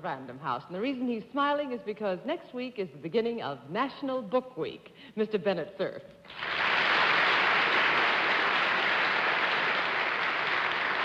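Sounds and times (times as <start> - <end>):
audience applauding: 6.3 - 11.0.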